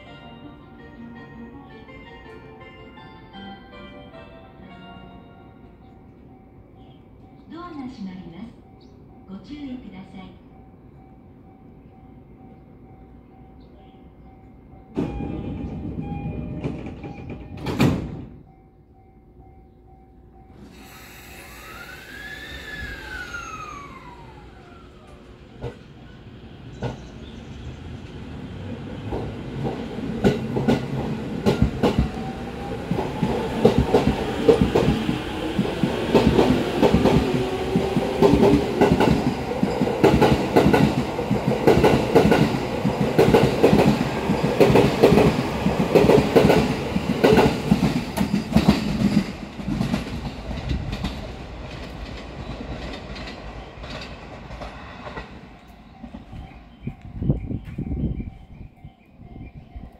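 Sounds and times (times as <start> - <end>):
electric train motor whine: 20.6 - 25.6
train wheels clacking on rails: 28.8 - 57.0.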